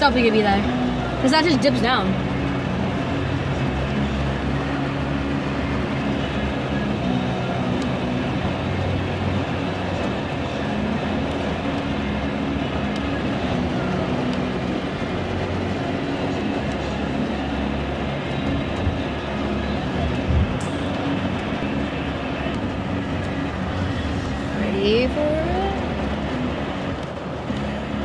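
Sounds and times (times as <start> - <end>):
engine and tyre hum: 0.0 - 28.0
rain on car roof: 0.0 - 28.0.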